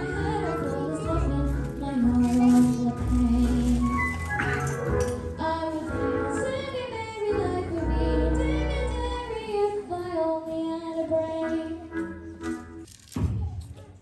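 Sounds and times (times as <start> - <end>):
young voices singing: 0.0 - 3.8
musical accompaniment: 0.0 - 12.9.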